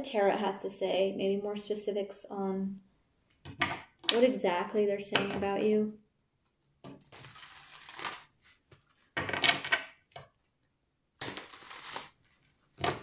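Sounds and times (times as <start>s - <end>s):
cards being shuffled: 7.0s - 9.8s, 11.2s - 13.0s.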